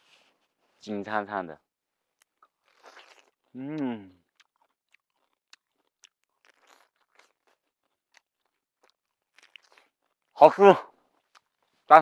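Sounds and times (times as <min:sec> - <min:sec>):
fruit chewing crunches: 0:02.1 - 0:12.0
mouth clicks: 0:02.3 - 0:04.6.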